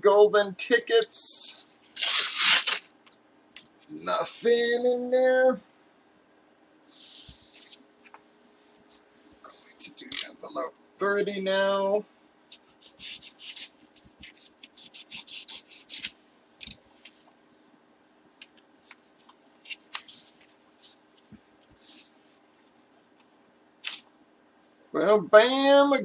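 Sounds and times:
paper rustling and crinkling: 12.5 - 17.2, 18.8 - 22.1.

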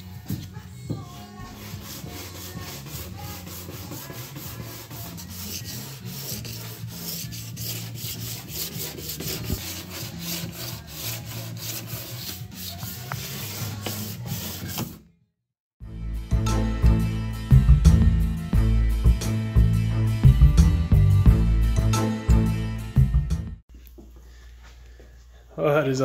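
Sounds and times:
hand sanding rubbing strokes: 1.0 - 14.8.

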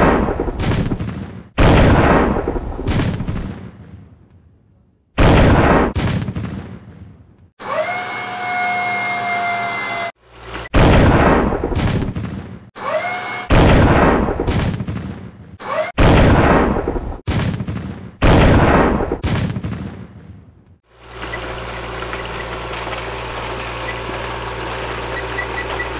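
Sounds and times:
tank cannon blasts: 0.0 - 4.2, 5.2 - 7.2, 10.7 - 12.7, 13.4 - 20.4.

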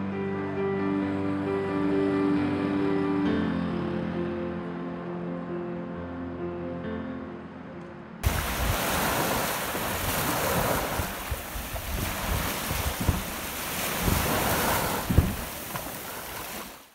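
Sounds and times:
wind buffeting microphone: 8.2 - 16.8
sea waves breaking on beach: 8.2 - 16.9.

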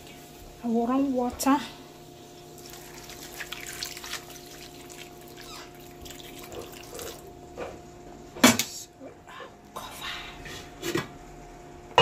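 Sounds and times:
water pouring and splashing: 2.5 - 7.3.

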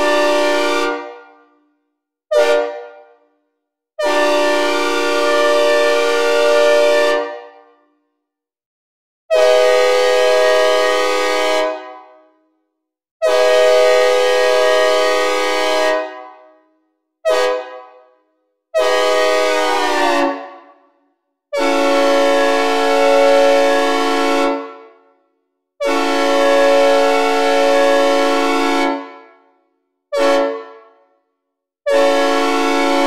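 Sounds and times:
synthesized train air horn blasts: 0.0 - 1.4, 2.3 - 3.2, 4.0 - 7.6, 9.3 - 12.2, 13.2 - 16.5, 17.2 - 18.1, 18.8 - 20.6, 21.5 - 24.8, 25.8 - 29.1, 30.1 - 30.8, 31.9 - 33.0.

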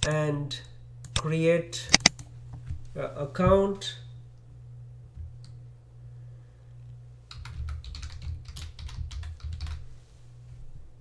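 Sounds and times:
steady low hum: 0.0 - 11.0
typing on computer keyboard: 7.3 - 9.8.

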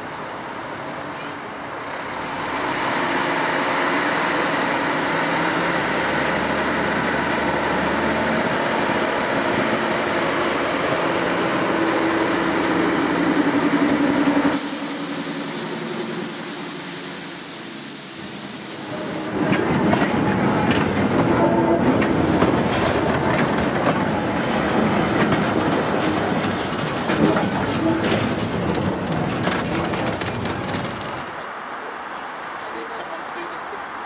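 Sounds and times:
diesel locomotive engine running: 0.0 - 34.0
steady hiss: 14.6 - 19.4.

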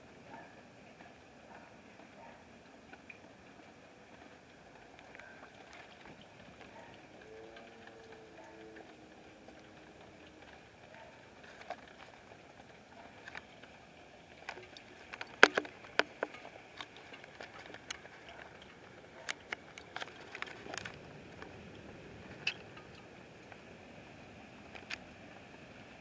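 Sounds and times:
faint steady hiss: 0.0 - 26.0
raindrops tapping: 0.2 - 26.0.

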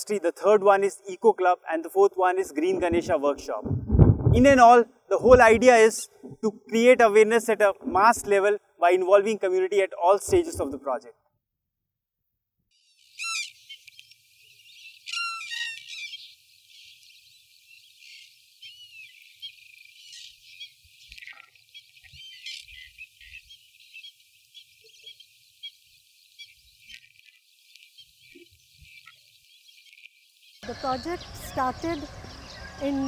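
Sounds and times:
small birds chirping: 12.7 - 33.0
cranes calling: 12.8 - 17.2, 17.8 - 30.0, 30.6 - 33.0.

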